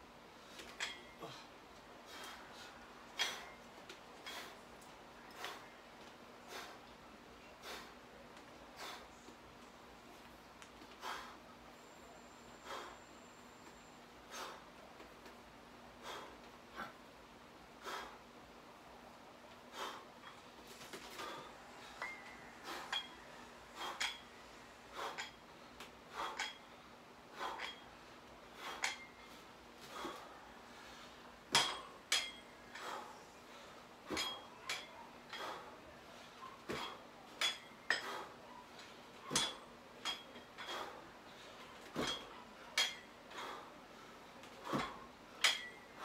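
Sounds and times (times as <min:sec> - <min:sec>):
dumbbell plates clinking: 0:00.5 - 0:01.4, 0:03.2 - 0:04.5, 0:21.2 - 0:25.4, 0:26.1 - 0:26.8, 0:27.4 - 0:27.9, 0:28.6 - 0:30.2, 0:31.5 - 0:33.1, 0:34.0 - 0:35.7, 0:36.6 - 0:38.4, 0:39.2 - 0:41.0, 0:41.8 - 0:43.7, 0:44.6 - 0:46.0.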